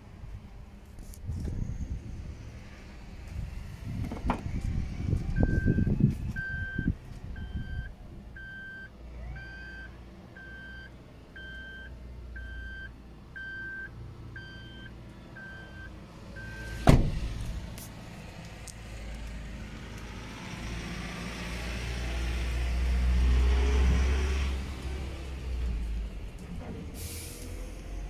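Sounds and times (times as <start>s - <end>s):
truck warning chime beeping: 5.4s - 16.8s
dull handling thumps: 16.8s - 17.2s
door shutting thud: 16.8s - 17.3s.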